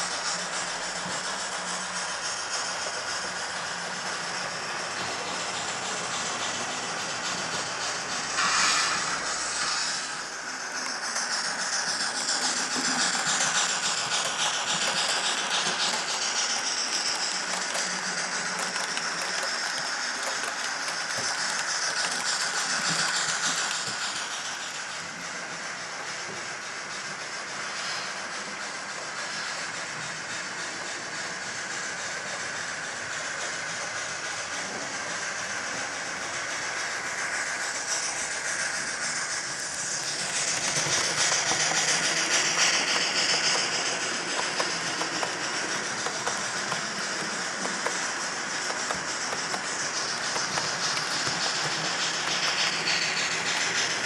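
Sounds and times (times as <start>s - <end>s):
model train wagons rolling: 0.0s - 27.8s, 28.5s - 54.0s
wheels rattling and clicking: 10.8s - 25.0s, 37.2s - 54.0s.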